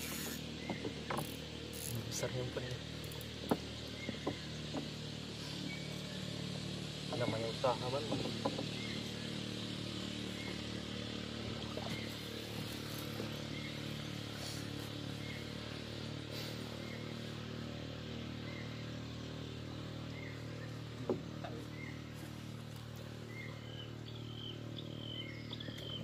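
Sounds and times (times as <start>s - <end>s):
low engine drone: 0.0s - 26.0s.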